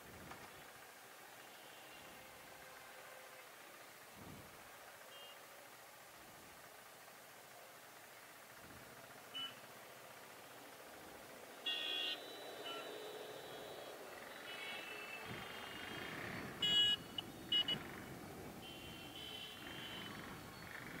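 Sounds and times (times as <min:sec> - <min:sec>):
traffic rumble: 0:00.0 - 0:21.0
motorcycle pulling away: 0:08.3 - 0:18.6, 0:19.6 - 0:21.0
vehicle horns honking: 0:09.3 - 0:09.7, 0:11.6 - 0:18.0, 0:18.6 - 0:20.4.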